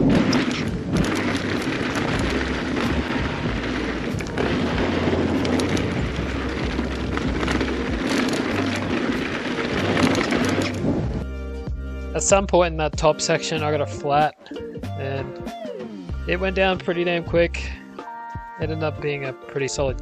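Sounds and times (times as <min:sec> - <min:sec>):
bike rattles and knocks: 0:00.0 - 0:11.2
bike tyres rolling on dirt: 0:00.0 - 0:11.3
low rumble: 0:00.0 - 0:11.3.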